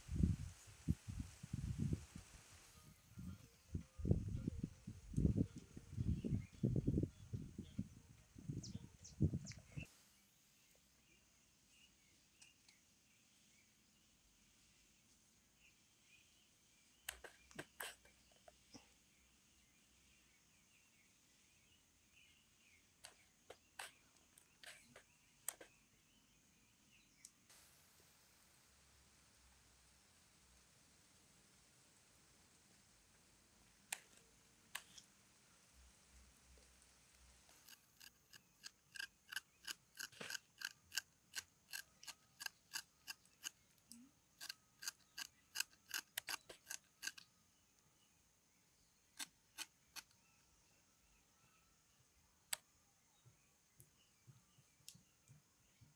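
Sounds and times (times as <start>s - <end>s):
faint bird chirps: 2.6s - 27.5s, 41.8s - 55.9s
knife shaving lime peel: 37.5s - 43.6s, 44.4s - 47.2s.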